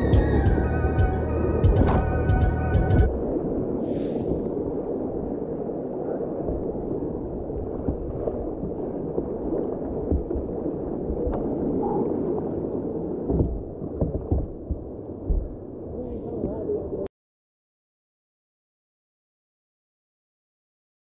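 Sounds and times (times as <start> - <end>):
low thumps: 0.0 - 3.1, 13.3 - 15.7.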